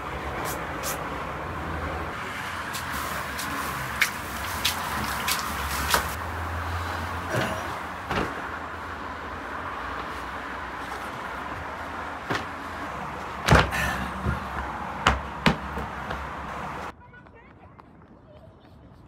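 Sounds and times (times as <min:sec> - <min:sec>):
sharp knocks and thumps: 0:13.4 - 0:16.3.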